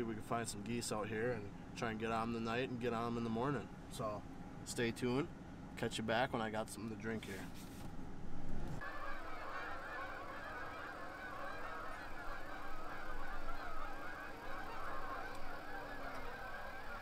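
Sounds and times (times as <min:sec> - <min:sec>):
geese honking in flight: 0:08.8 - 0:17.0.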